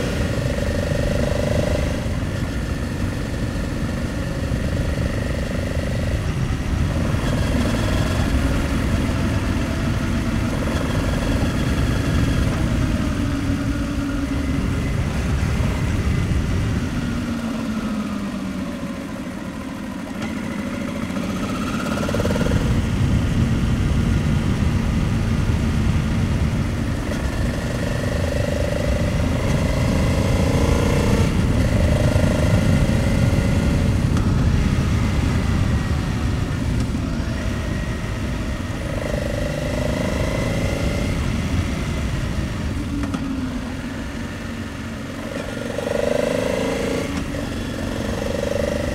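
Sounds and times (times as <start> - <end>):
wind noise on microphone: 0.0 - 18.3, 20.9 - 48.9
motorcycle engine running: 0.0 - 48.9.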